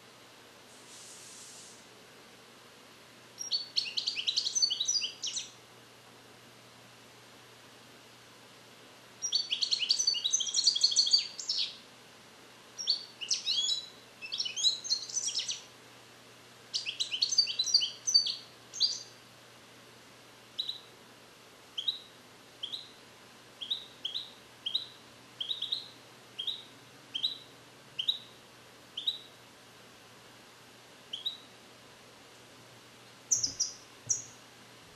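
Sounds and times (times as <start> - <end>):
bird chirps: 3.4 - 5.6, 9.2 - 11.8, 12.8 - 15.7, 16.7 - 19.2, 20.6 - 20.9, 21.8 - 23.0, 23.6 - 28.4, 29.0 - 29.4, 31.1 - 31.5, 33.3 - 34.4
goldfinch twittering: 23.6 - 27.4, 33.3 - 34.3.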